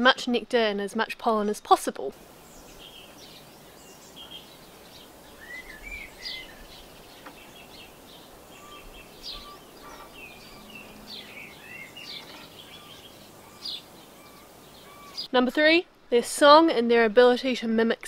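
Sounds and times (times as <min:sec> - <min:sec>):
low background hiss: 0:00.0 - 0:18.0
songbirds chirping and whistling: 0:02.2 - 0:15.3.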